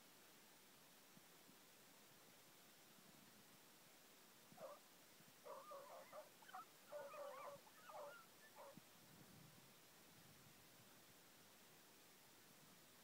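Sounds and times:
hounds yelping and baying: 4.6s - 4.8s, 5.4s - 8.8s.

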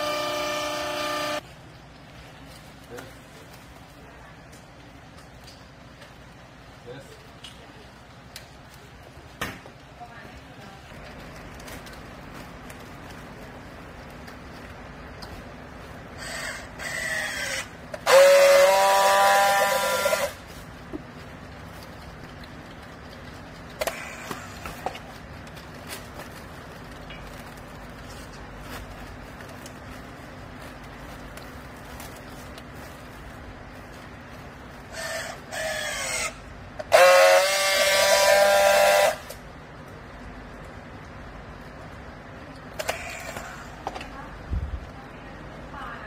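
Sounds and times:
strapping tool motor: 0.0s - 1.4s, 16.2s - 20.4s, 34.9s - 39.4s, 42.8s - 43.7s
strapping tool welding buzz: 0.0s - 1.4s, 16.2s - 20.4s, 34.9s - 39.4s.

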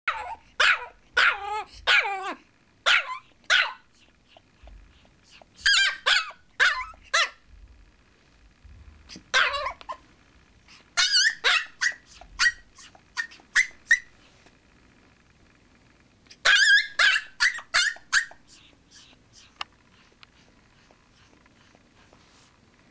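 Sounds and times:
puppy barking in high yips: 0.1s - 4.1s, 5.6s - 7.4s, 9.3s - 10.0s, 11.0s - 14.1s, 16.3s - 19.1s.

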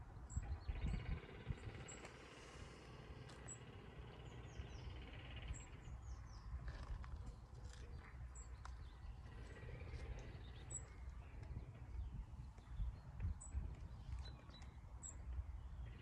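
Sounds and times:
low steady rumble: 0.0s - 16.0s
small birds chirping: 0.0s - 16.0s.

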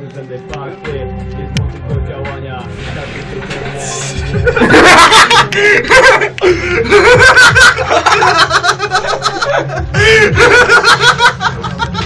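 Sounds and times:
laughter and snickering: 4.2s - 12.0s.

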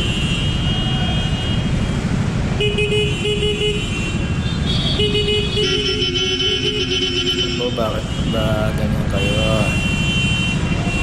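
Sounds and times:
idling traffic rumble: 0.0s - 11.0s.

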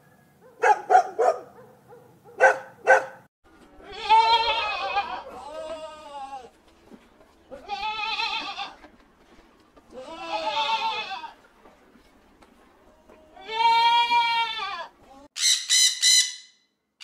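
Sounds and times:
goats bleating: 3.8s - 6.5s, 7.5s - 8.9s, 9.9s - 11.4s, 13.2s - 15.2s.

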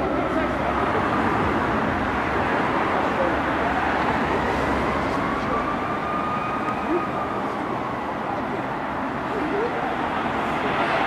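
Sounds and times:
city street traffic: 0.0s - 11.0s
distant fire engine siren: 2.4s - 11.0s.

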